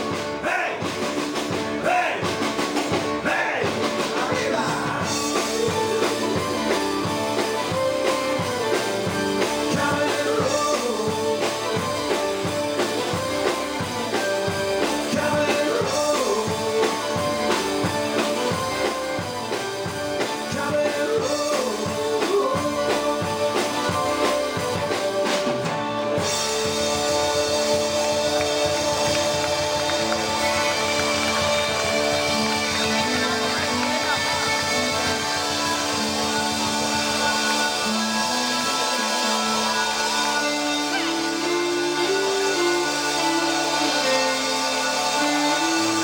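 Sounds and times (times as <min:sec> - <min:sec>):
guitar: 0:00.0 - 0:46.0
steady drum beat: 0:00.0 - 0:46.0
person singing: 0:03.1 - 0:46.0.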